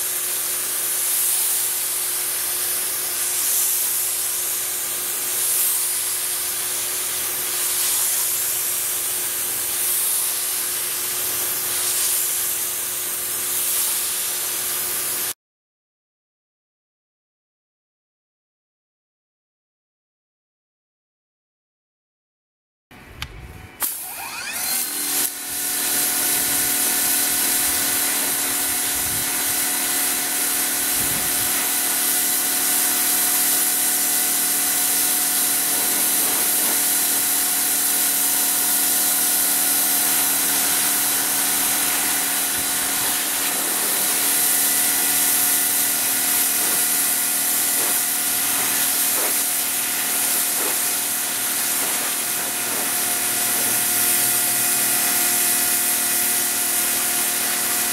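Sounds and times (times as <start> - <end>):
water jet hissing on rubber mats: 0.3 - 15.3, 23.8 - 57.9
pressure washer motor whining: 23.8 - 57.9.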